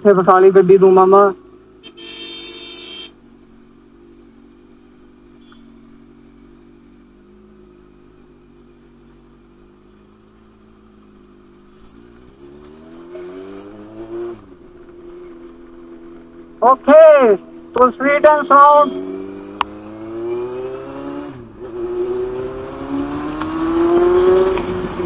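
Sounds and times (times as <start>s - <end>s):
motorcycle engine revving: 8.9s - 25.0s.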